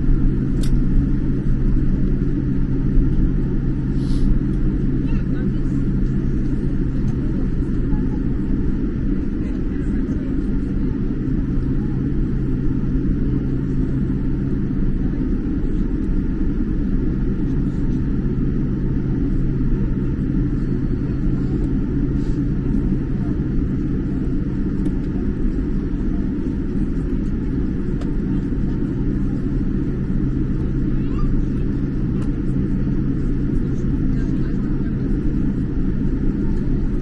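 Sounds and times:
constant low hum: 0.0 - 37.0
jet engines rumbling: 0.0 - 37.0.

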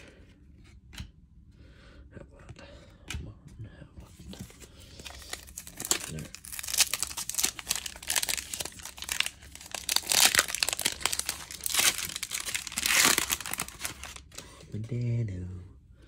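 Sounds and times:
wrapper crinkling and tearing: 5.0 - 14.4.

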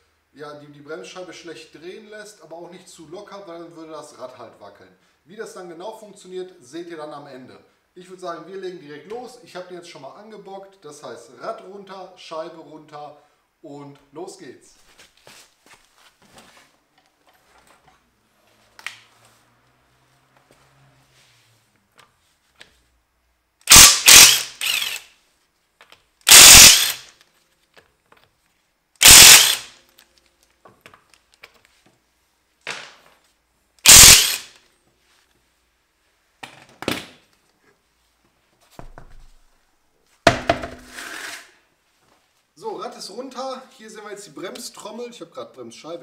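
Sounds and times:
impact wrench hammering: 23.7 - 25.0, 26.3 - 27.1, 29.0 - 29.7, 33.8 - 34.6.

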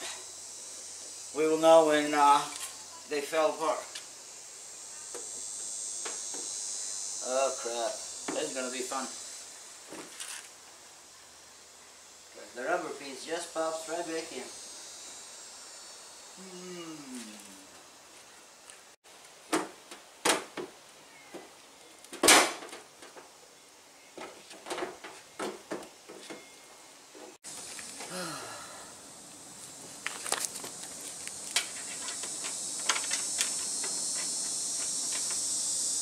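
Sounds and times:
high insect drone: 0.0 - 36.0.

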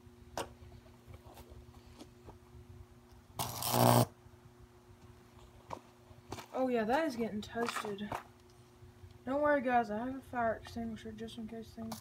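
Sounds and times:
electric arc buzzing crackle: 3.4 - 4.2.

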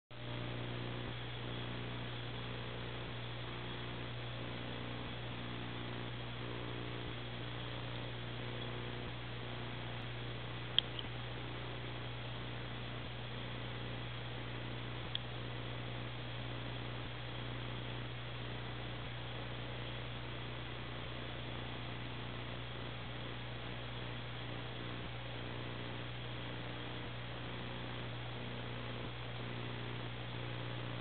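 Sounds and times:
low electrical hum: 0.1 - 31.0
faint clicks: 10.7 - 11.2, 15.0 - 15.3.

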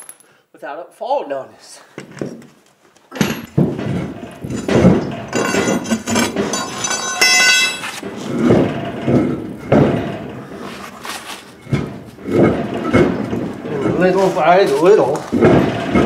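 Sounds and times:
tire knocking and scraping on rim: 3.2 - 16.0.

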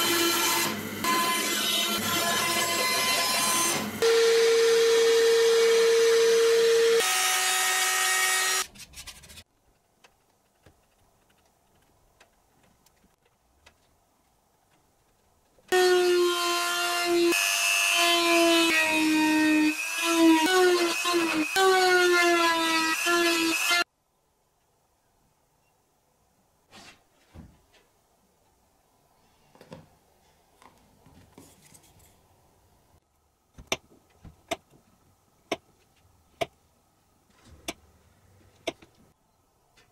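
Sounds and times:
band saw cutting wood: 0.0 - 8.7.

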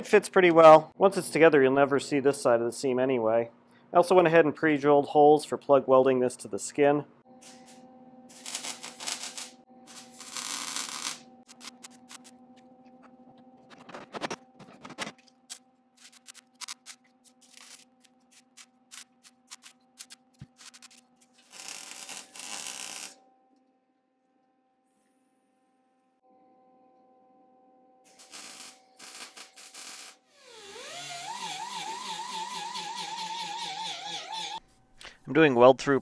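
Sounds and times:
quick welder clicks and blips: 7.4 - 12.4
welder crackling: 8.3 - 12.3, 16.0 - 23.2, 28.1 - 34.6.

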